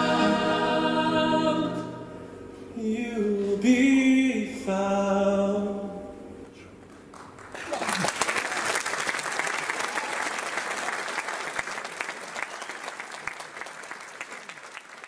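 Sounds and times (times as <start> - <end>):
audience applauding: 6.9 - 15.0.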